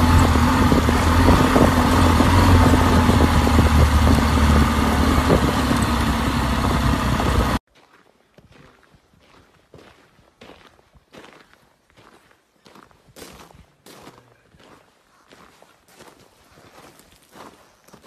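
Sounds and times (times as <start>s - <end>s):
motorcycle engine cruising: 0.0s - 7.6s
tyres crunching on gravel: 0.0s - 18.0s.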